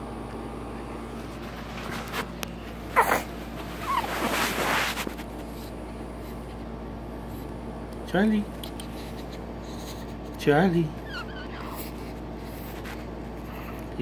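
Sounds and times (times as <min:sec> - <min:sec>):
rustling against bedding: 0:01.2 - 0:06.6
baby squeaking: 0:03.8 - 0:04.4, 0:11.0 - 0:12.0.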